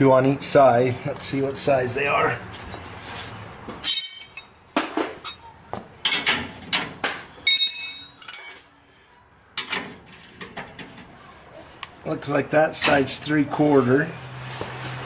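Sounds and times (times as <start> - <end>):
metal sockets clinking: 6.0 - 8.8.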